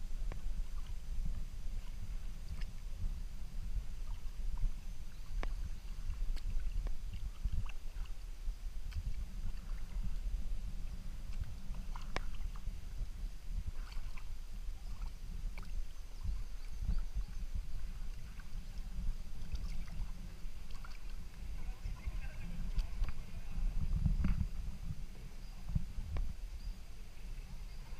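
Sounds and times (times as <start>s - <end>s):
steady low rumble: 0.0s - 27.9s
paddle splashes and drips: 0.2s - 3.1s, 3.9s - 23.4s.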